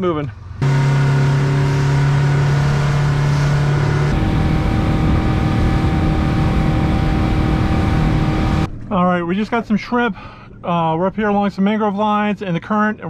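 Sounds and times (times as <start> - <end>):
outboard motor running: 0.6 - 8.7.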